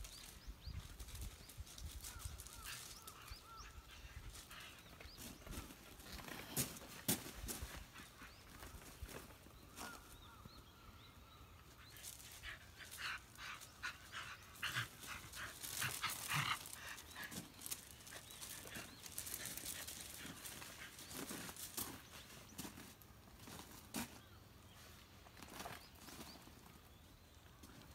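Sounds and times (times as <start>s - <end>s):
paws crunching on gravel: 1.7s - 10.5s, 11.9s - 24.4s.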